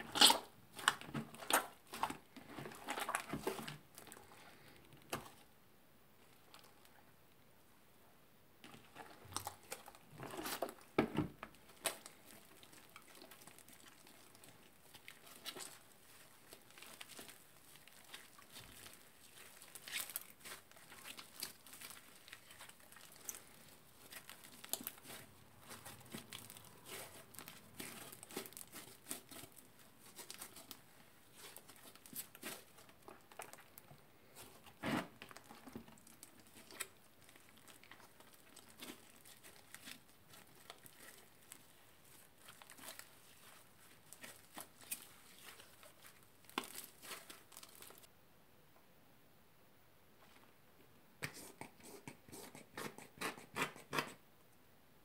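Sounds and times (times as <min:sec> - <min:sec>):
slime crackling and popping: 0:11.5 - 0:33.8, 0:34.4 - 0:48.1.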